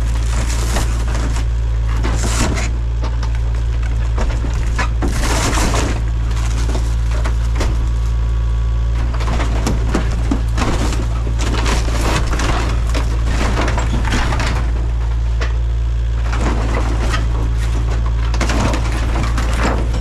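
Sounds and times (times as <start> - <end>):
crunching and scraping of bus body: 0.0 - 20.0
excavator diesel engine running: 0.0 - 20.0.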